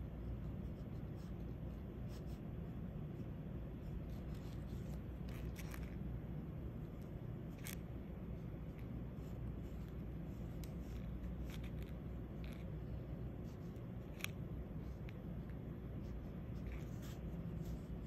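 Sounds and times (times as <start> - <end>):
steady low hum: 0.0 - 18.0
pen scratching on paper: 8.4 - 18.0.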